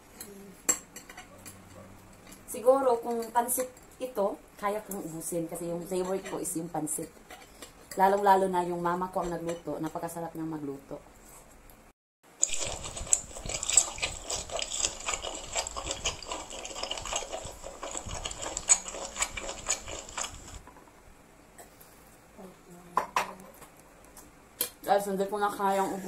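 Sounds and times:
slurping and chewing noodles: 0:12.3 - 0:20.6.

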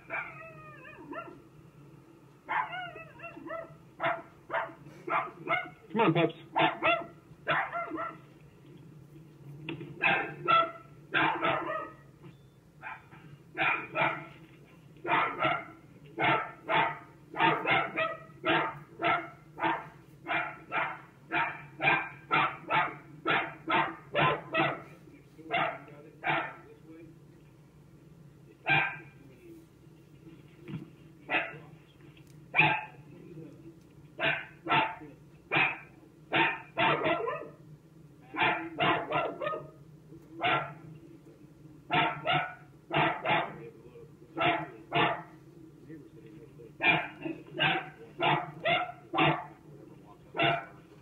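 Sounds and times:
dog barking: 0:00.0 - 0:01.4, 0:02.5 - 0:05.9, 0:06.5 - 0:08.3, 0:10.0 - 0:12.0, 0:12.8 - 0:14.4, 0:15.0 - 0:26.7, 0:28.6 - 0:29.1, 0:31.3 - 0:31.7, 0:32.5 - 0:33.0, 0:34.2 - 0:37.6, 0:38.3 - 0:39.8, 0:40.4 - 0:40.8, 0:41.9 - 0:43.7, 0:44.4 - 0:45.4, 0:46.8 - 0:49.6, 0:50.4 - 0:50.8.

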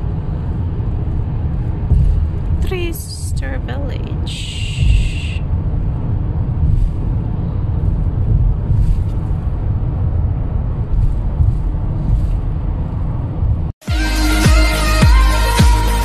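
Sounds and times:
car road noise rumble: 0:00.0 - 0:13.8
music: 0:13.8 - 0:16.0.

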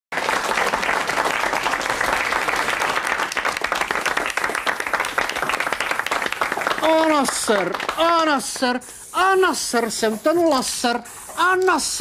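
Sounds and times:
audience applauding: 0:00.1 - 0:08.8.

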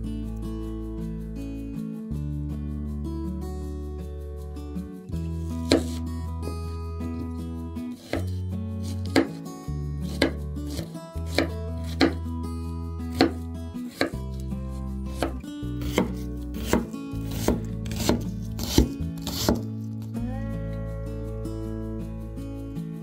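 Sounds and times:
background music: 0:00.0 - 0:23.0
knife chopping vegetables: 0:05.6 - 0:06.1, 0:07.9 - 0:09.4, 0:10.1 - 0:12.2, 0:13.1 - 0:14.4, 0:15.1 - 0:19.8.

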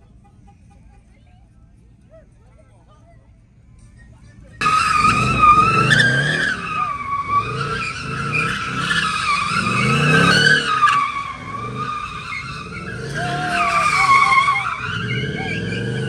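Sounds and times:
tyres screeching: 0:03.8 - 0:16.0
engine revving: 0:04.6 - 0:16.0.

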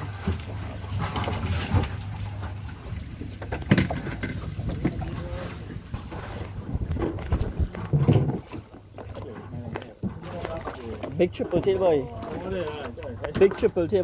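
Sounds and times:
wind on microphone: 0:03.9 - 0:08.7
low rumble: 0:04.4 - 0:08.7.

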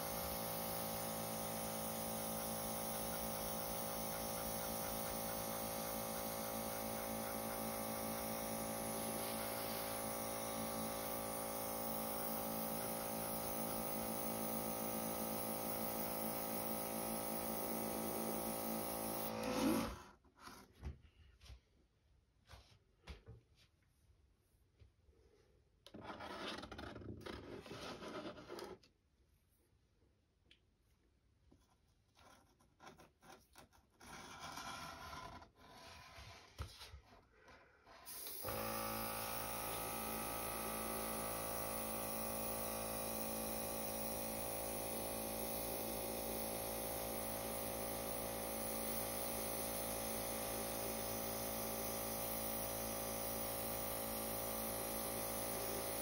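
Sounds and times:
airbrush air hiss: 0:00.0 - 0:19.3
compressor humming: 0:00.0 - 0:19.9, 0:38.1 - 0:56.0.

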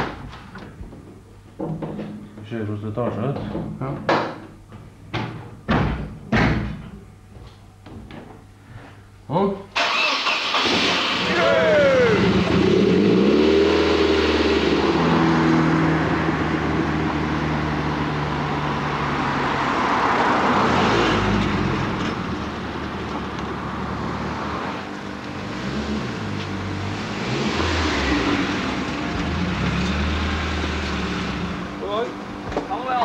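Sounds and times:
car engine idling and revving: 0:11.8 - 0:31.8.

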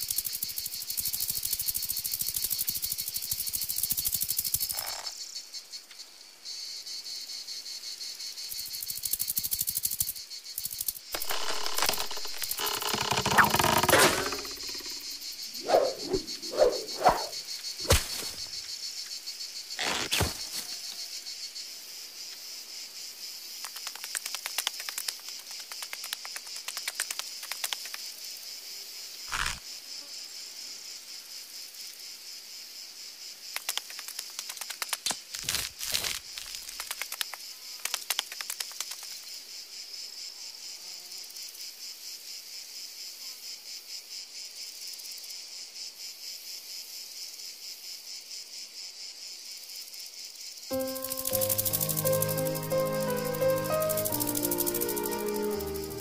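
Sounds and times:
insects chirring: 0:00.0 - 0:56.0
short squeaky blips: 0:11.2 - 0:15.0.

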